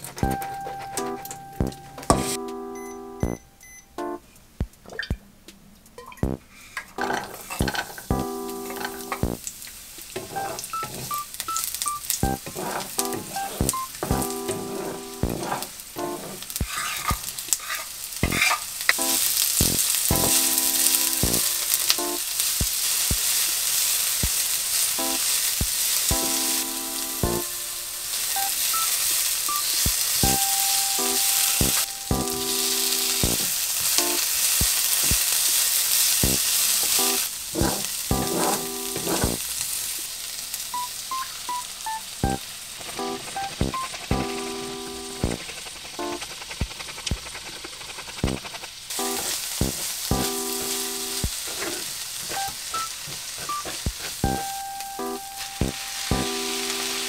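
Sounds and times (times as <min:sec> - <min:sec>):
onion sizzling in oil: 0:07.0 - 0:57.0
spatula scraping a pan: 0:10.2 - 0:11.2, 0:12.2 - 0:18.7, 0:36.2 - 0:39.4, 0:43.0 - 0:54.6.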